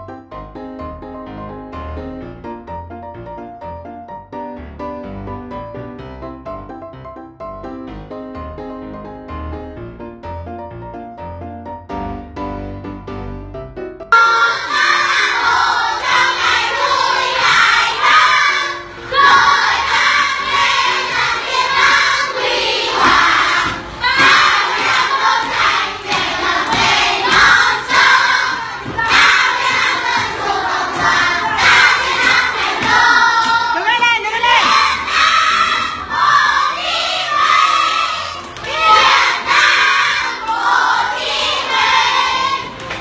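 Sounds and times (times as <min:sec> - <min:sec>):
children singing and shouting: 0:14.2 - 0:43.0.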